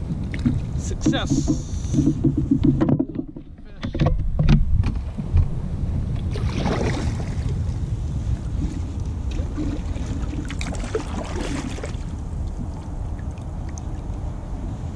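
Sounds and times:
wind rumble on microphone: 0.0s - 14.9s
paddle splashing in water: 0.1s - 4.2s, 6.2s - 7.7s, 8.3s - 14.1s
paddle knock: 0.2s - 5.5s.

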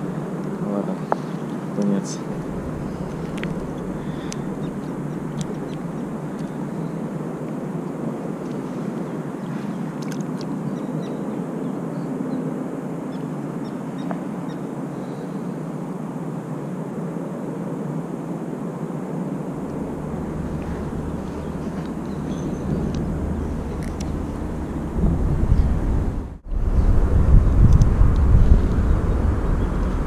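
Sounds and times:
deeper rumble: 0.0s - 8.7s, 19.5s - 30.0s
low outdoor rumble: 0.0s - 10.7s, 19.2s - 30.0s.

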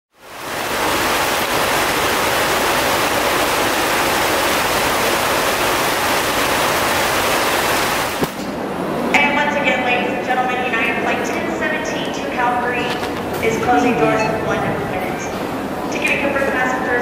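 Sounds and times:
heavy rain pouring: 0.2s - 8.3s.

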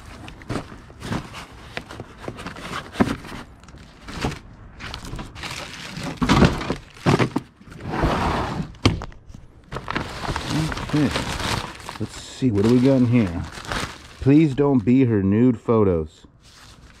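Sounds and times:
paper or plastic rustling: 0.0s - 7.8s, 9.6s - 15.1s, 16.4s - 17.0s
objects knocking while rummaged: 6.0s - 7.5s.

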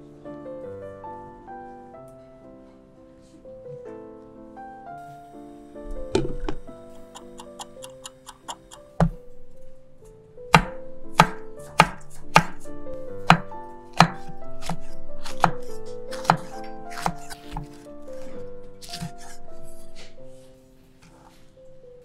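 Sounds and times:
background music: 0.0s - 22.0s
knife chopping on wooden board: 10.6s - 17.9s, 18.8s - 19.4s.

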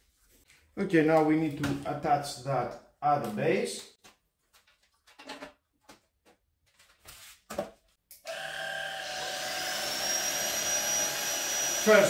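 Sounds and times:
high motor whine: 8.3s - 12.0s
stick vacuum motor running: 8.3s - 12.0s.

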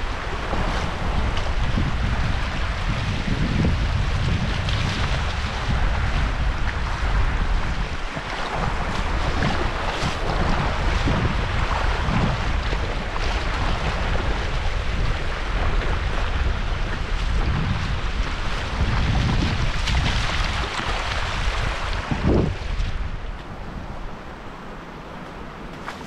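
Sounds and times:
water rushing: 0.0s - 26.0s
wind buffeting microphone: 0.0s - 26.0s.

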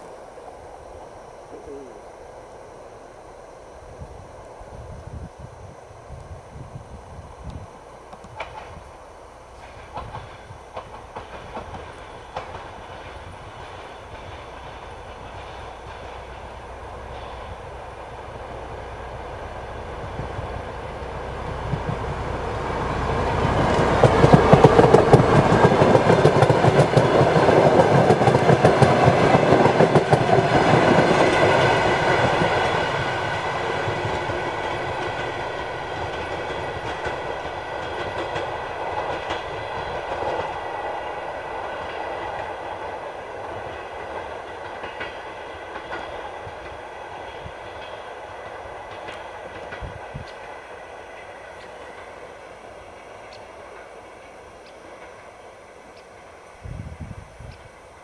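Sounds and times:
diesel train engine passing: 0.0s - 58.0s
wheels clicking over rail joints: 8.1s - 8.8s, 9.6s - 17.5s, 23.4s - 56.6s.

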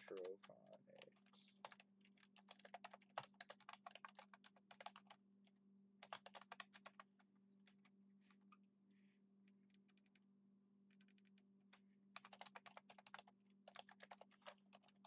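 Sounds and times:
typing on computer keyboard: 0.0s - 5.2s, 6.0s - 7.9s, 9.7s - 10.2s, 10.9s - 11.4s, 12.2s - 15.0s.

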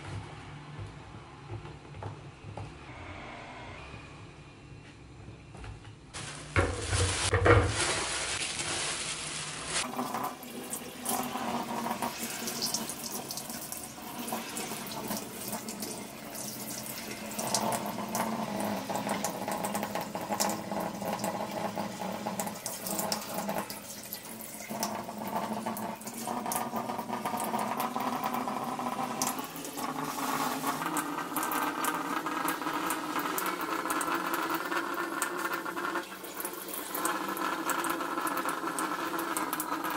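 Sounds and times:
tap water running into metal sink: 9.8s - 39.9s.

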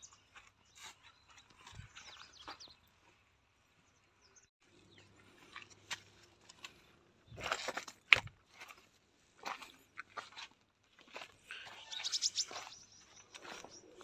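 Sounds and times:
footsteps crunching over rubble: 0.0s - 3.3s, 5.0s - 14.0s
birds chirping: 0.0s - 8.2s, 11.2s - 14.0s.

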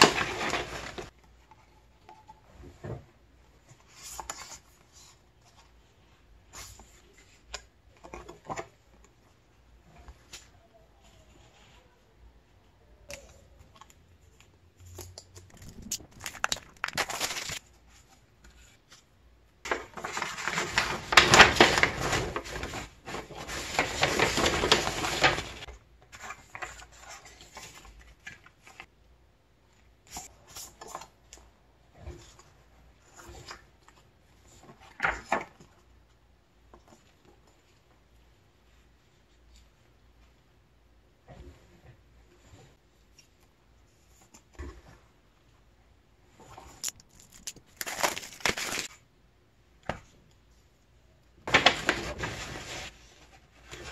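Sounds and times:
paper rustling and crinkling: 0.0s - 1.2s, 13.6s - 19.1s, 19.7s - 28.9s, 32.0s - 35.9s, 46.3s - 49.0s, 51.4s - 53.9s.

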